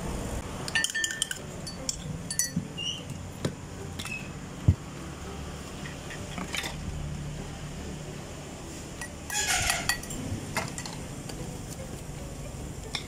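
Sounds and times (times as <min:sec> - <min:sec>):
glassware clinking: 0:00.7 - 0:02.8, 0:09.0 - 0:11.0.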